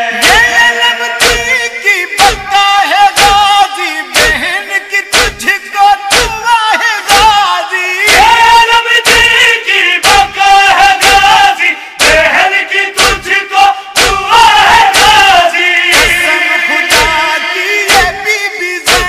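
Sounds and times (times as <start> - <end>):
group of voices chanting: 0.0 - 6.4, 7.0 - 19.0
man chanting a lament: 0.0 - 19.0
chest-beating slaps: 1.2 - 2.5, 3.2 - 3.4, 4.2 - 4.4, 5.1 - 5.5, 6.1 - 6.4, 7.1 - 7.4, 8.1 - 8.4, 9.0 - 9.4, 10.0 - 11.4, 12.0 - 12.3, 13.0 - 13.3, 14.0 - 14.3, 14.9 - 15.3, 15.9 - 16.3, 16.9 - 17.2, 17.9 - 18.2.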